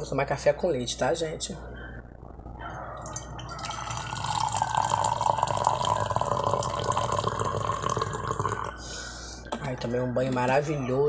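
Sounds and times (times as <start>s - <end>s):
coffee pouring into a cup: 3.0s - 8.8s.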